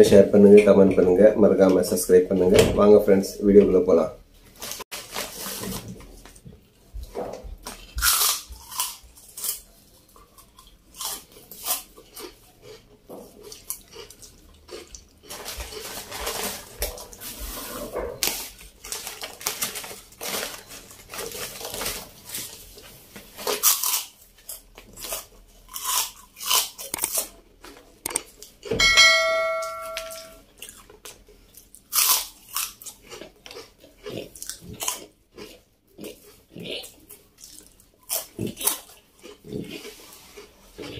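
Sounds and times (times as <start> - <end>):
plastic snack bag rustling: 4.6 - 6.4, 13.9 - 17.6, 18.2 - 25.6
crunching and chewing chips: 7.0 - 17.6, 18.2 - 28.8, 30.4 - 40.9
short ringing tone: 28.8 - 30.4.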